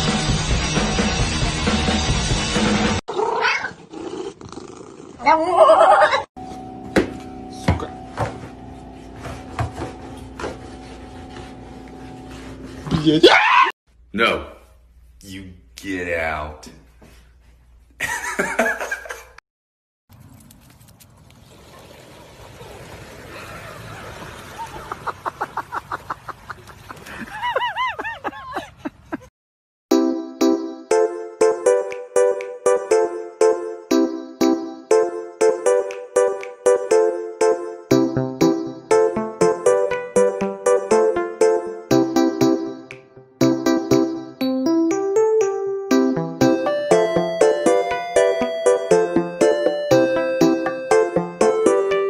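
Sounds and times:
rock music: 0:00.0 - 0:03.0
cat yowling: 0:03.1 - 0:03.8, 0:13.0 - 0:13.7.

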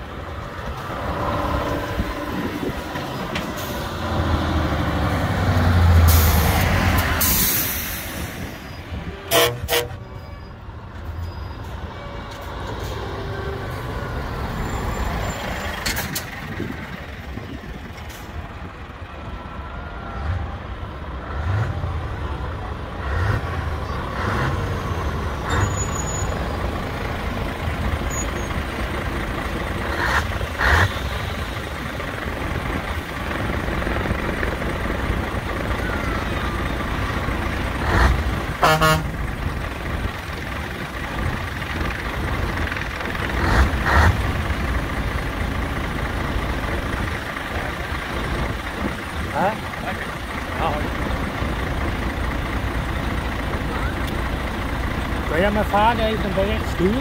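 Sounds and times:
diesel truck engines rumbling: 0:00.0 - 0:57.0
short horn toots: 0:09.1 - 0:10.6, 0:38.6 - 0:39.1.

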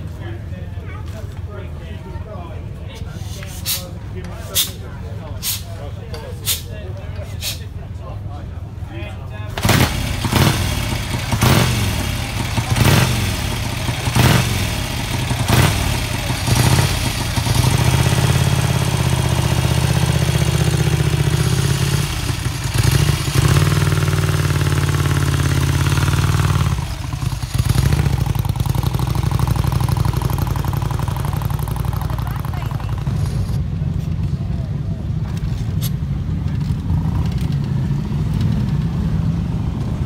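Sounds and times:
motorcycle engine revving: 0:09.6 - 0:33.8.

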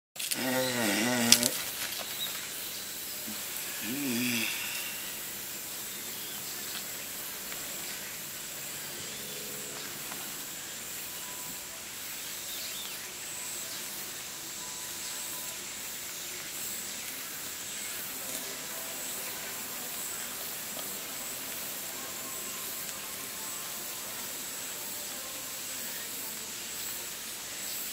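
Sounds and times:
outdoor background hiss: 0:00.2 - 0:27.9
faint high-pitched tone: 0:08.6 - 0:16.1.

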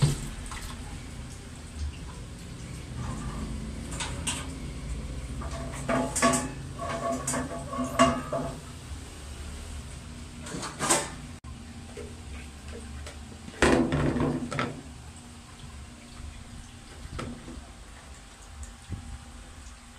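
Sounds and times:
dishes and utensils clinking: 0:03.0 - 0:04.6, 0:05.4 - 0:08.7, 0:10.4 - 0:11.2.

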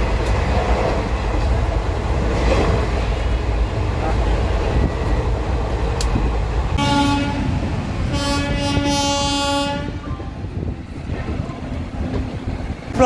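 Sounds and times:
moving train rumble: 0:00.0 - 0:13.0
train horn blasts: 0:06.8 - 0:10.3.

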